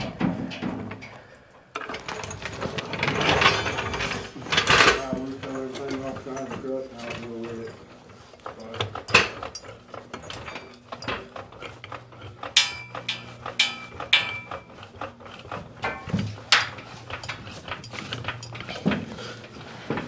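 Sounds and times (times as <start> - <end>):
metal tools clinking and ratcheting: 1.8 - 20.0
sharp metallic clanks: 12.4 - 15.1, 15.8 - 19.4.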